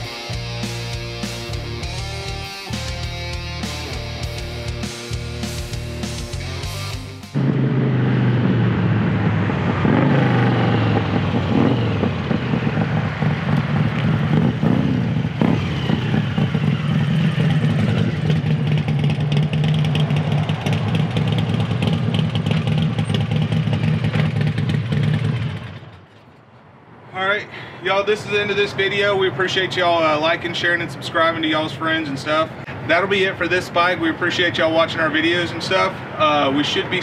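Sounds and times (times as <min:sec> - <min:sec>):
motorcycle engine running: 0:00.0 - 0:26.4.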